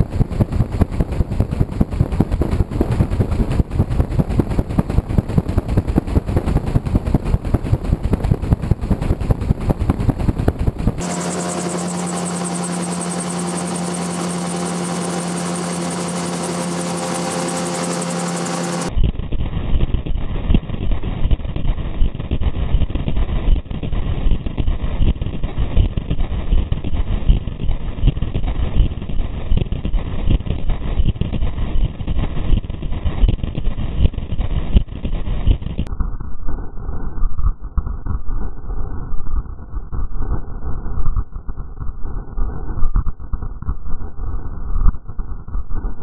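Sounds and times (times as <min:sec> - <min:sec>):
gyrocopter engine drone: 0:00.0 - 0:19.3
wind buffeting rotor blade: 0:00.0 - 0:19.4.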